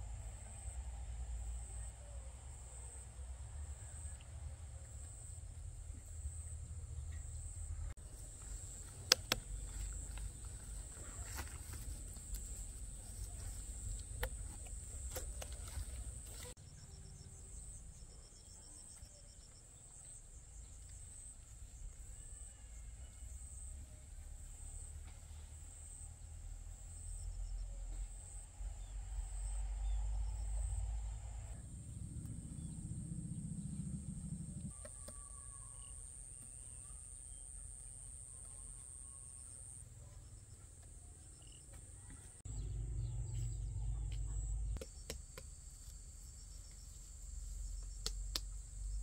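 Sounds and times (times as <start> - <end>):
low rumble: 29.0 - 34.7, 42.5 - 44.8.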